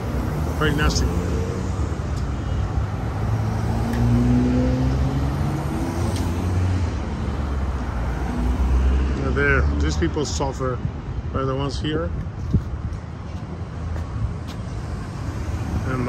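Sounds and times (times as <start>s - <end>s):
cars driving past: 0.0s - 11.3s, 12.2s - 16.0s
low traffic rumble: 0.0s - 16.0s
car accelerating: 2.8s - 9.7s.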